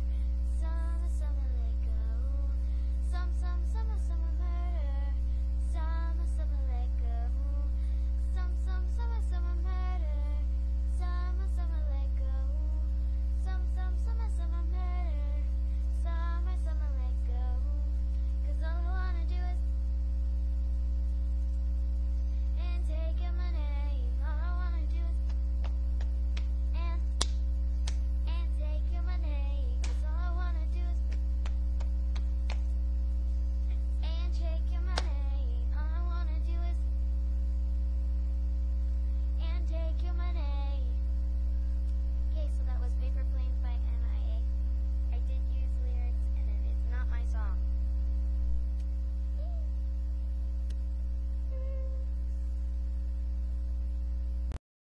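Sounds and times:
girl singing: 0.0 - 19.7, 22.5 - 25.7, 26.7 - 27.3, 28.2 - 31.3, 33.7 - 36.9, 39.3 - 41.0, 42.3 - 47.6
electrical mains hum: 0.0 - 54.6.

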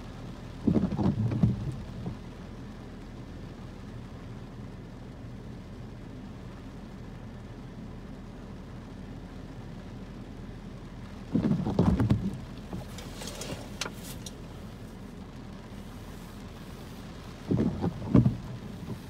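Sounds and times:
windshield wiper sweeping: 0.0 - 3.1, 11.0 - 19.0
car low hum: 0.0 - 19.0
wiper ticks: 17.4 - 19.0.

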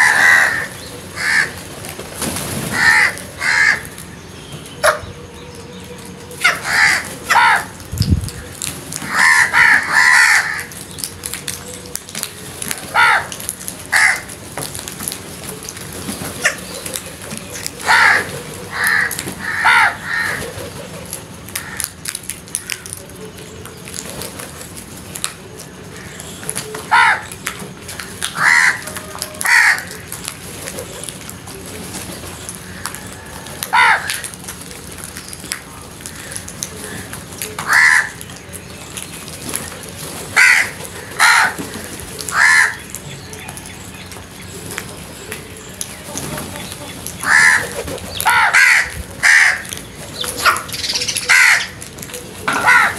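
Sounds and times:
crows cawing: 0.0 - 1.6, 2.7 - 4.0, 6.4 - 7.8, 8.4 - 10.8, 12.9 - 14.3, 17.8 - 20.6, 21.6 - 22.0, 26.9 - 27.4, 28.0 - 30.3, 32.6 - 34.4, 36.0 - 38.3, 40.4 - 42.9, 47.2 - 49.8, 50.4 - 51.8, 52.5 - 52.9.

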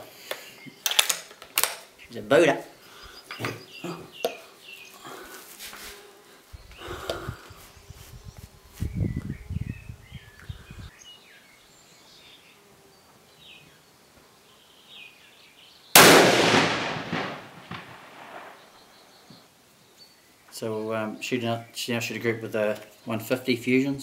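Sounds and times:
rifle shot echoing: 16.0 - 18.8.

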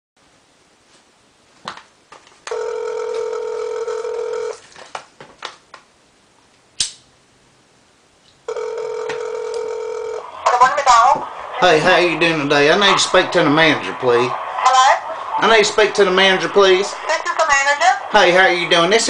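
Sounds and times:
telephone ringback tone: 2.5 - 4.6, 8.5 - 10.3
sharp clicks: 6.8 - 7.1.

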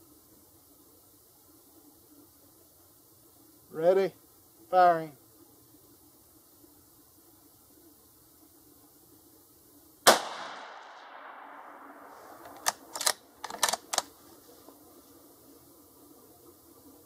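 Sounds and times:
rifle shot: 10.0 - 14.0.

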